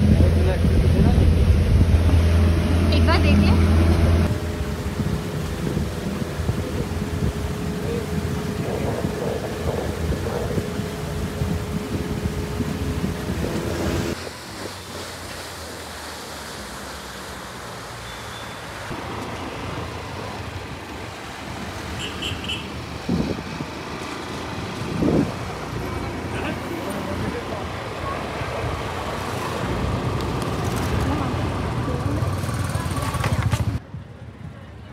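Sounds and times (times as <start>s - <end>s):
wind buffeting microphone: 0.0s - 15.0s, 22.8s - 25.8s
boat engine running: 0.0s - 15.3s
wash of water: 0.0s - 33.7s.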